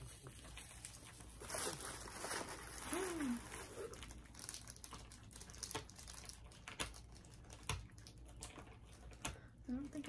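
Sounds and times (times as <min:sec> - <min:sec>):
plastic packaging crinkling: 0:00.0 - 0:09.2
person humming: 0:02.9 - 0:03.9.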